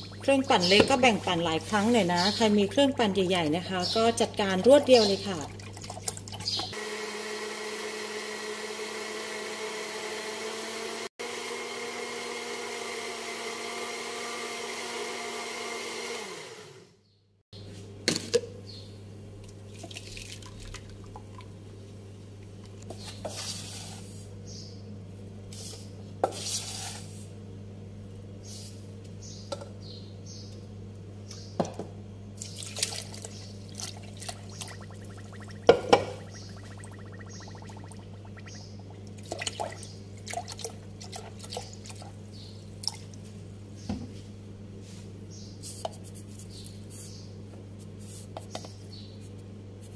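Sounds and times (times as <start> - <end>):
electric blender running: 6.8 - 16.9.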